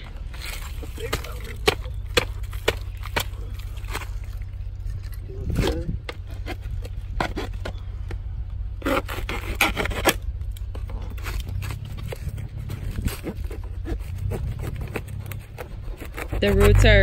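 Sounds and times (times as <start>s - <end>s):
tool scraping plastic pot: 8.8s - 10.3s, 10.9s - 17.0s.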